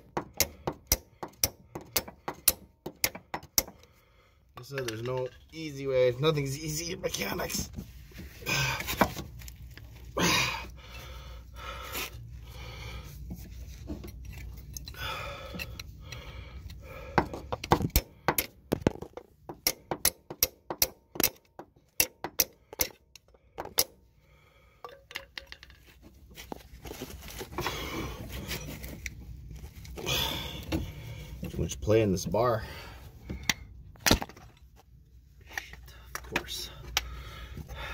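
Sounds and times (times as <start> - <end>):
sharp metallic clicks and taps: 0.1 - 3.9, 19.5 - 24.0.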